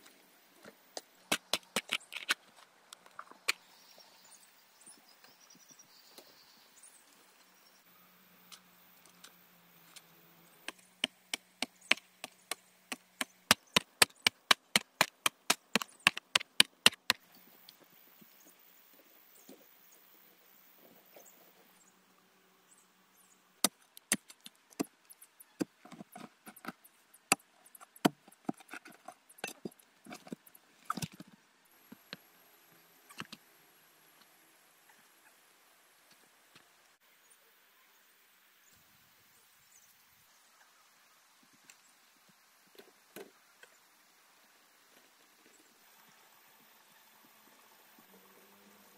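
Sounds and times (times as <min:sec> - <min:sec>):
hand tool chopping strikes: 0:10.7 - 0:17.2.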